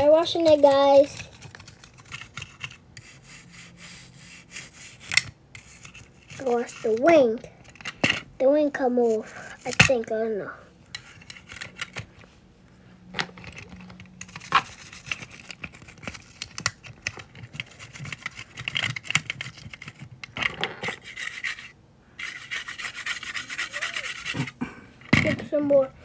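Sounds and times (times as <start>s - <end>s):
toothbrush scrubbing plastic: 0.0s - 7.1s, 13.4s - 24.6s.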